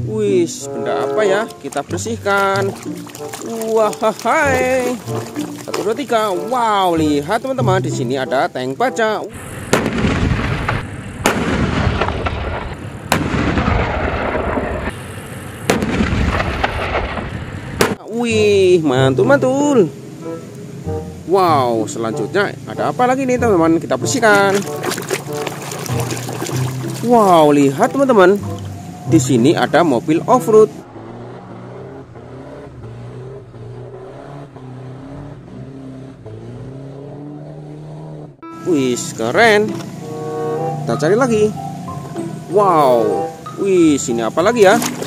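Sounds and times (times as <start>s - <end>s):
vehicle splashing through water: 0.0s - 8.5s, 9.4s - 45.0s
tank engine rumbling: 0.0s - 45.0s
sharp blasts: 9.4s - 18.0s
long roar of noise: 30.8s - 36.3s.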